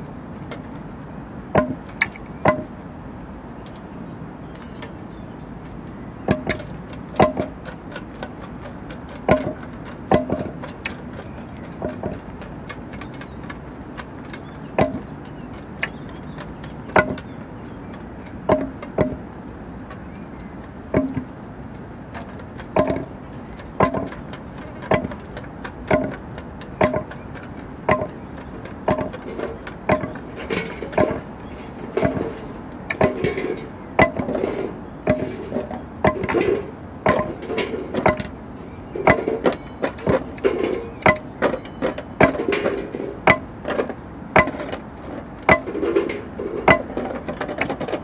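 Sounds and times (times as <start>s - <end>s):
knocks on found objects: 1.5s - 2.7s, 6.3s - 17.3s, 18.5s - 19.2s, 20.9s - 21.3s, 22.1s - 28.2s, 28.9s - 31.2s, 32.0s - 38.4s, 39.0s - 48.0s.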